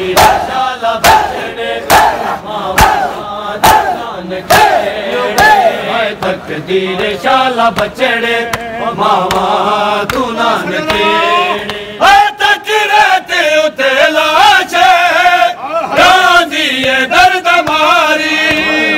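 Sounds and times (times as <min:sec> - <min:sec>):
crowd beating chests: 0:00.0 - 0:12.0
men chanting a lament: 0:00.0 - 0:18.9.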